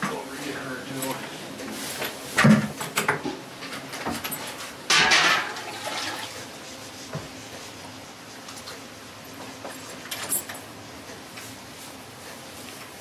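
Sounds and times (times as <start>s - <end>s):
metal pail clanking: 4.9s - 6.4s.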